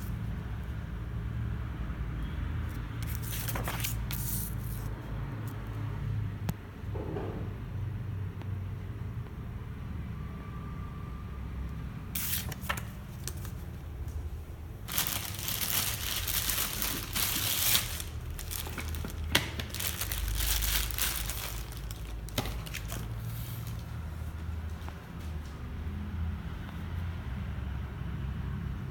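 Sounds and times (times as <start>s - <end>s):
plastic wrapping crinkling: 12.2s - 23.9s.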